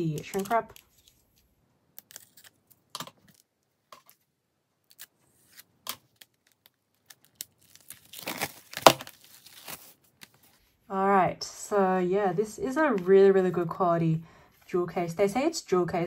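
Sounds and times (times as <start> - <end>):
plastic tearing and crinkling: 4.8 - 10.3
plastic wrap being slit: 4.9 - 10.0.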